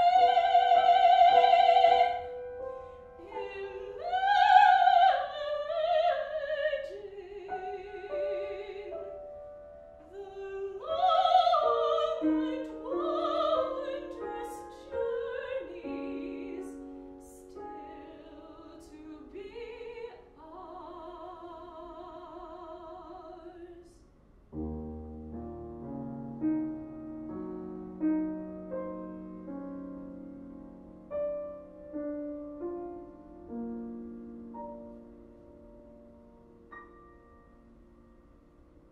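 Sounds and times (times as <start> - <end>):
woman singing with vibrato: 0.0 - 2.4, 3.2 - 9.0, 10.0 - 24.0
grand piano: 0.0 - 38.9.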